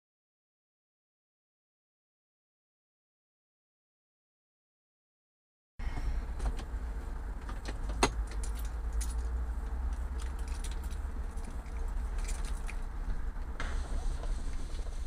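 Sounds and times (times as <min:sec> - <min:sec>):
engine and road rumble: 0:05.8 - 0:15.0
light clicks and rattles: 0:07.4 - 0:13.5.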